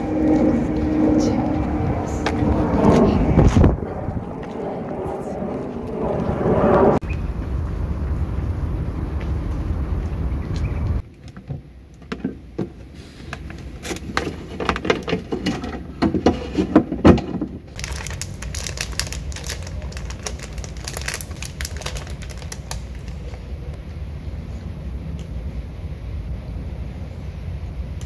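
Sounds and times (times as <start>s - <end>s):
plastic snack bag crinkling: 17.8s - 23.4s.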